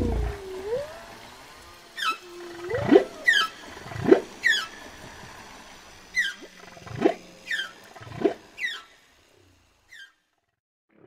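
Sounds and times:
whale moans: 0.0 - 4.1
whale squeals: 0.0 - 5.0.

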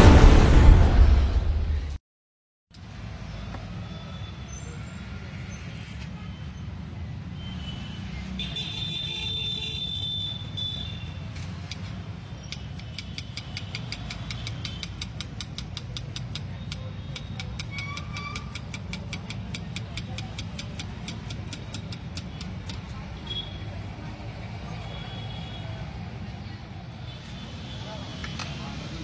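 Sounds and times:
street background rumble: 2.7 - 29.0.

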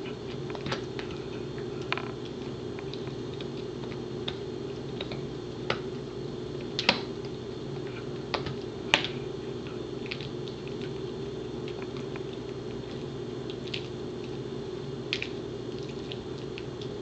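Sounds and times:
dog teeth cracking on chew: 8.3 - 14.4, 15.1 - 17.0.

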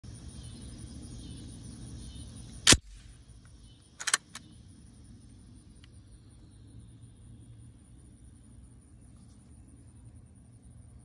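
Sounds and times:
shotgun action clacking: 2.7 - 3.0, 4.0 - 4.4
bolt handle clicks: 4.0 - 4.4.

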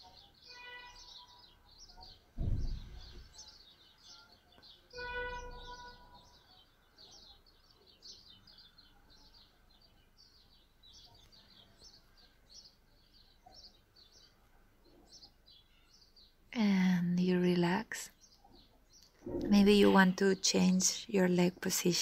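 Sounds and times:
small birds chirping: 0.0 - 22.0.

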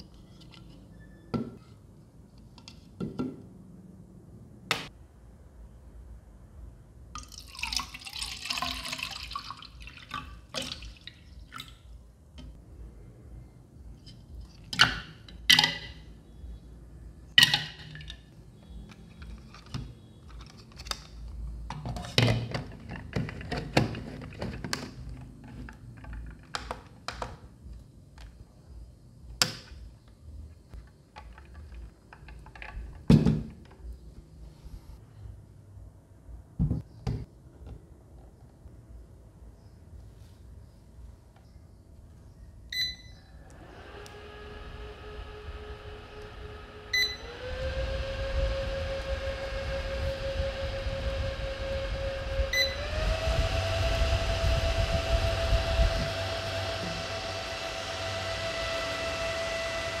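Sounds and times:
water pouring into tank: 7.2 - 11.8.

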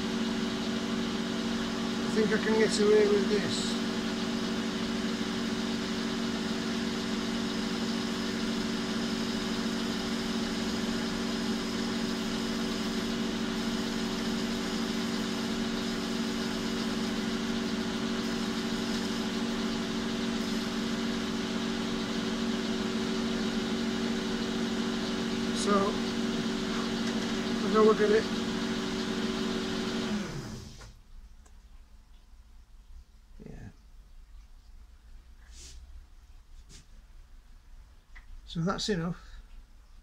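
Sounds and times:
lathe tool cutting metal bar: 0.0 - 30.8
metal lathe humming: 0.0 - 30.9.

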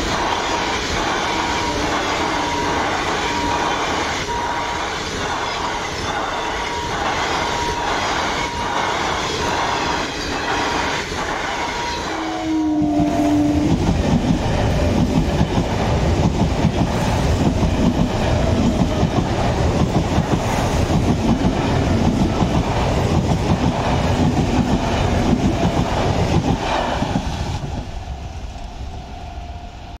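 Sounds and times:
train horn: 0.0 - 5.3, 6.0 - 9.0, 11.4 - 14.1
heavy train rumble: 0.0 - 30.0
train wheels clacking over rail joints: 12.8 - 28.0.

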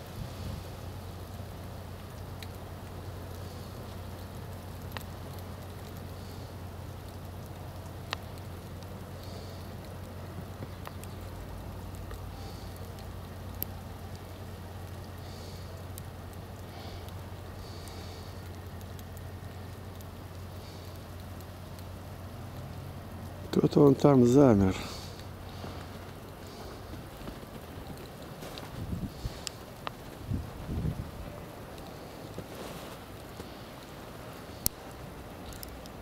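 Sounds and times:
constant low hum: 0.0 - 36.0
falling snow: 0.0 - 36.0
wind: 0.0 - 36.0
faint clicks: 2.4 - 2.6, 4.8 - 6.4, 7.0 - 14.4, 25.0 - 30.1, 33.2 - 36.0.

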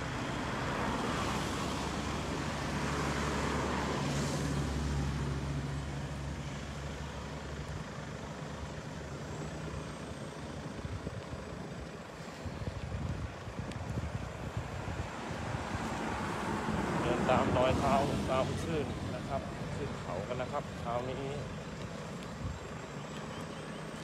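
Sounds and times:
road noise: 0.0 - 24.0
vehicle engine running: 0.0 - 24.0.

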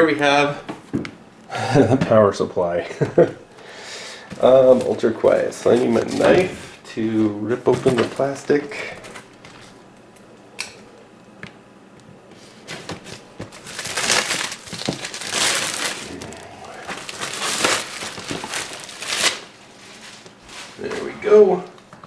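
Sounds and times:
plastic wrapping crinkling: 12.7 - 20.9.

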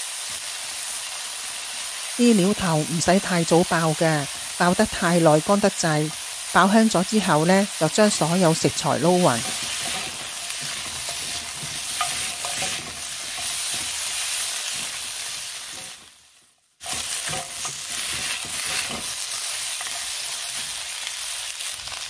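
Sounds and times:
food sizzling in hot oil: 0.0 - 22.0
spatula scraping a wok: 9.3 - 16.2, 16.8 - 22.0.

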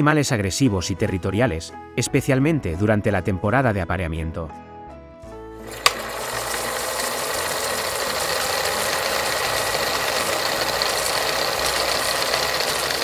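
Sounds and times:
fast continuous rattling: 5.7 - 13.0.

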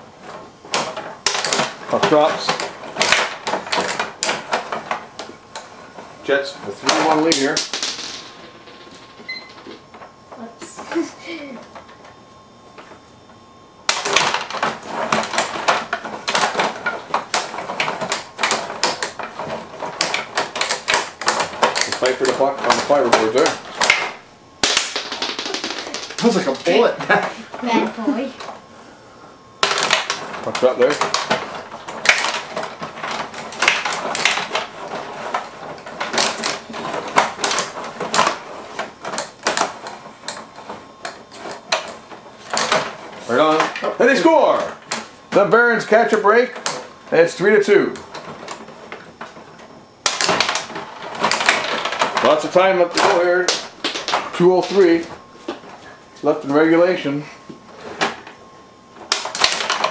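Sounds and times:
table hockey rods clattering: 0.0 - 10.1, 13.9 - 28.5, 29.6 - 55.8, 59.0 - 59.9
rod hockey figures clacking: 13.9 - 27.1.

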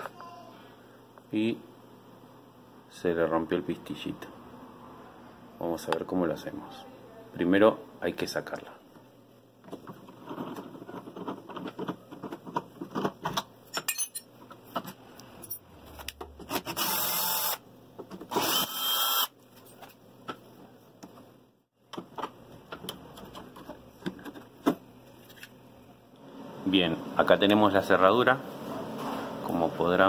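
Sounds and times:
cordless drill running: 16.8 - 17.6, 18.3 - 19.3.

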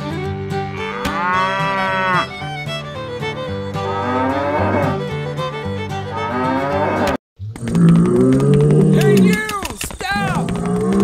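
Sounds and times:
background music sustained notes: 0.0 - 7.1
cow mooing: 0.8 - 2.2, 3.8 - 5.0, 6.2 - 9.3.

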